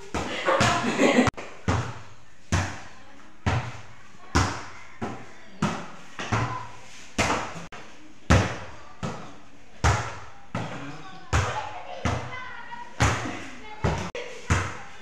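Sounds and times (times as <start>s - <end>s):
volleyball hits echoing: 0.0s - 2.8s, 8.3s - 12.4s, 13.0s - 14.8s.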